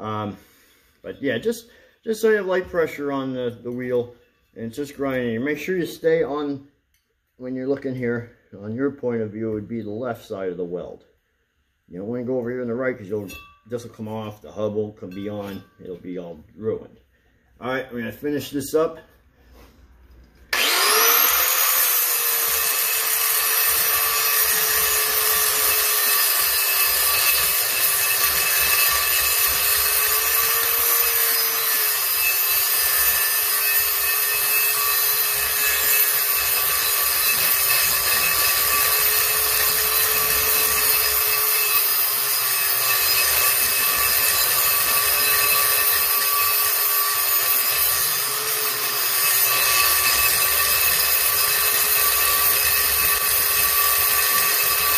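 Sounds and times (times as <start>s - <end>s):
angle grinder grinding steel: 20.5s - 54.9s.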